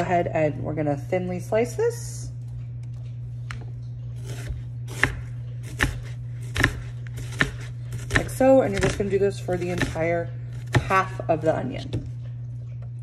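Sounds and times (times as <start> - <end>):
knife slicing onion: 4.2 - 11.2.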